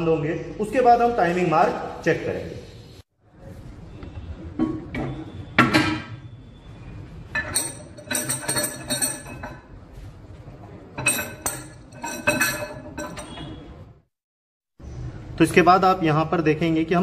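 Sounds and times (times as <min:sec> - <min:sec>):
camshaft clinking and scraping: 0:07.3 - 0:09.6, 0:11.0 - 0:13.6.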